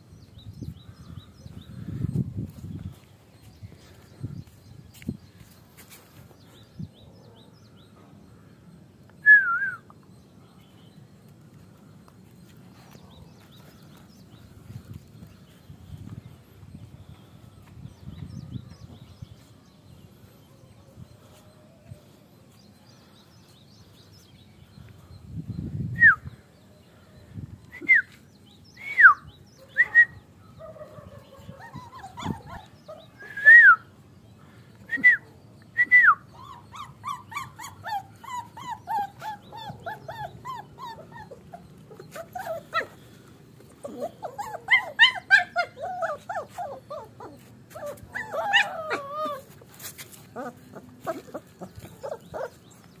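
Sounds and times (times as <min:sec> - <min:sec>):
puppies whining: 0:31.3 - 0:33.6, 0:36.3 - 0:53.0.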